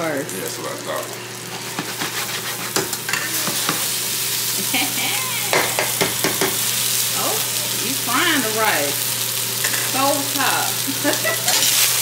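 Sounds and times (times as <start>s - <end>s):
rice sizzling in a pan: 0.0s - 12.0s
utensil scraping a pan: 1.6s - 3.8s.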